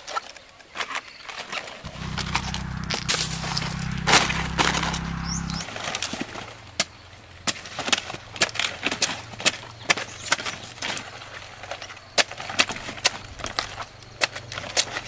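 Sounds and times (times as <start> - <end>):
low steady hum: 1.9 - 7.3.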